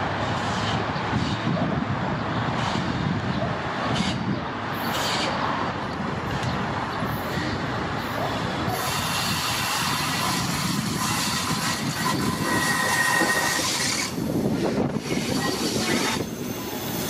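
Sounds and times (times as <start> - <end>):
train rumble: 0.0 - 17.0
high-pitched wheel squeal: 8.7 - 14.2, 14.8 - 17.0.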